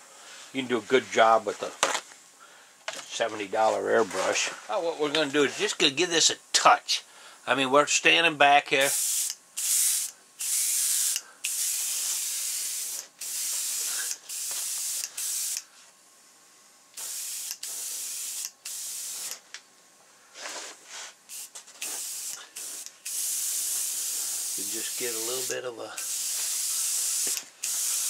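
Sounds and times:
airbrush spraying air hiss: 0:08.8 - 0:15.7, 0:17.0 - 0:19.4, 0:20.4 - 0:28.0.

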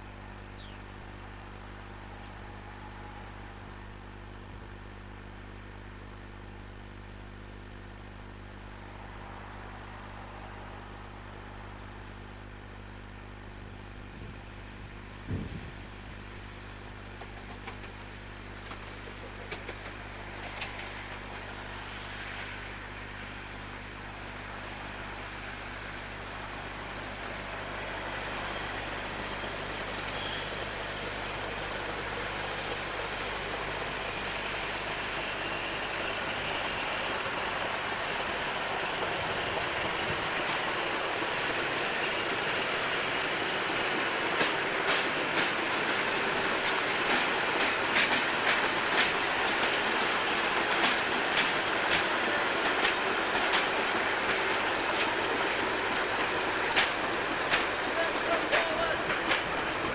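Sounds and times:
steady low hum: 0:00.0 - 0:45.4
diesel locomotive engine: 0:00.0 - 0:59.9
train wheel noise: 0:00.0 - 0:59.9.

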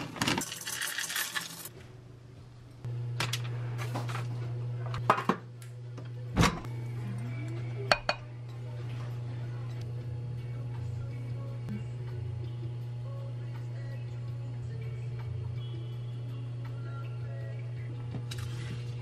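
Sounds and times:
chocolate chips pouring into bowl: 0:00.4 - 0:01.7
steady low hum: 0:01.7 - 0:19.0.

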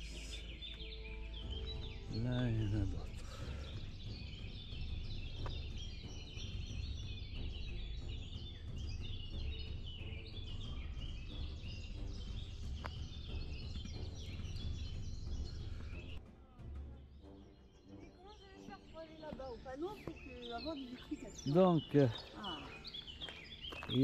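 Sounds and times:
steady low rumble: 0:00.0 - 0:16.2
small birds chirping: 0:00.0 - 0:24.0.

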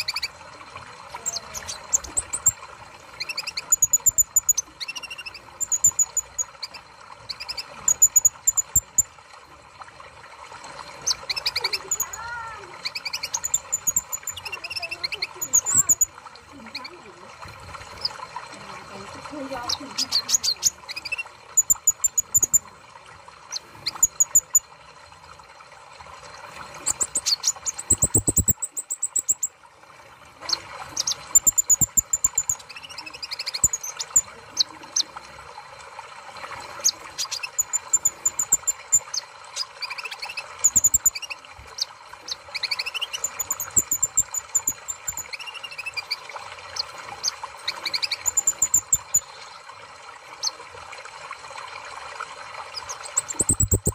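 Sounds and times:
bird chirps and trills: 0:00.0 - 0:00.4, 0:01.1 - 0:09.1, 0:11.0 - 0:17.1, 0:19.3 - 0:22.6, 0:23.5 - 0:24.7, 0:26.7 - 0:29.6, 0:30.4 - 0:35.1, 0:36.8 - 0:49.5, 0:52.6 - 0:53.9.

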